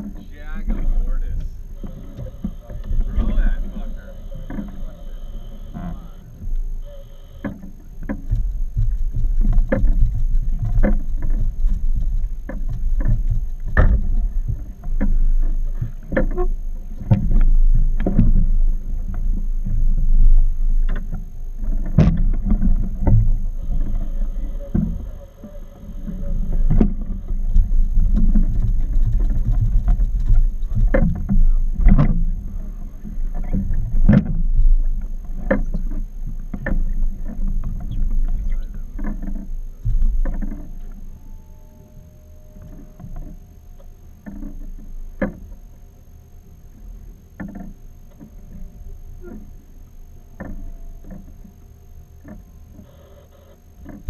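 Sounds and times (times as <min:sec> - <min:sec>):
low rumble: 0:00.0 - 0:52.8
boat knocks and water slaps: 0:07.4 - 0:15.2, 0:20.9 - 0:23.4.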